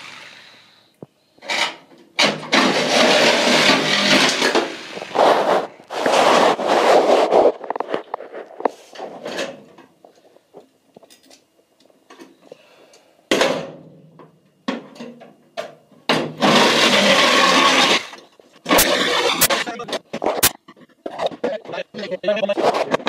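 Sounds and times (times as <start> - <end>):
power tool bursts on sheet metal: 1.5 - 6.4, 16.2 - 19.8.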